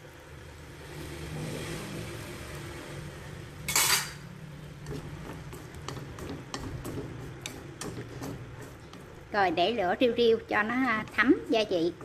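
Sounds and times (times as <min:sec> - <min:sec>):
spoon scraping a pan: 0:04.8 - 0:09.4.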